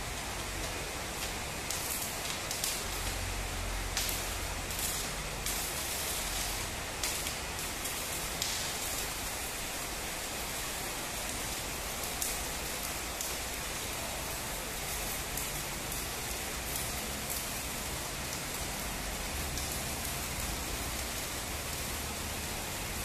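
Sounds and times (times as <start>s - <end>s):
welding arc crackling: 0.0s - 23.0s.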